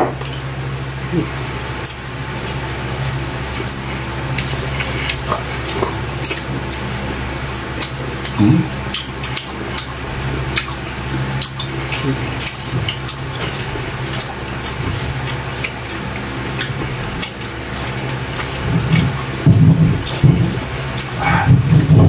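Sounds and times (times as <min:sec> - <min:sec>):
steady low hum: 0:00.0 - 0:22.0
lip smacking and chewing: 0:01.2 - 0:22.0
brief low vocal sound: 0:08.4 - 0:08.8, 0:21.2 - 0:22.0.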